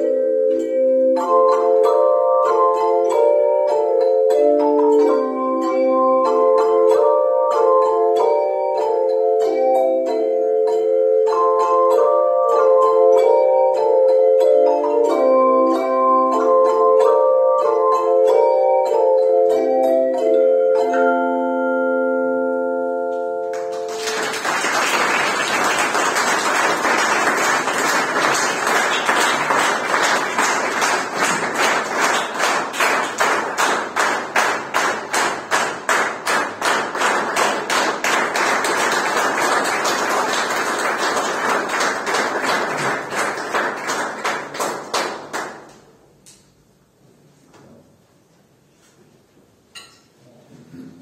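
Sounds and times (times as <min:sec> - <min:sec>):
rhythmic clapping in unison: 0:00.0 - 0:20.9, 0:23.5 - 0:46.5
audience applauding: 0:23.6 - 0:45.7.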